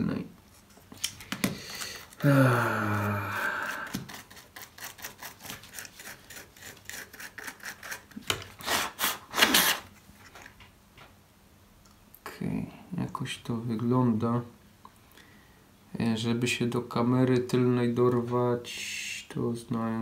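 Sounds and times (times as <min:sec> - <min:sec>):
cotton swab scrubbing: 0:03.7 - 0:08.3.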